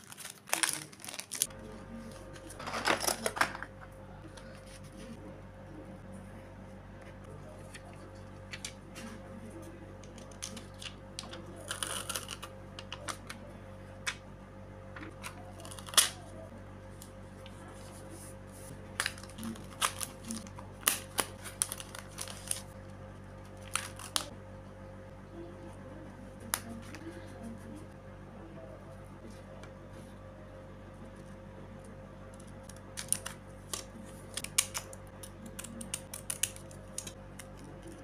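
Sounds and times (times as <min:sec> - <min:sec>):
sticker sheets crinkling: 0:00.0 - 0:03.4, 0:18.6 - 0:22.8, 0:23.4 - 0:24.3
steady low hum: 0:00.0 - 0:38.0.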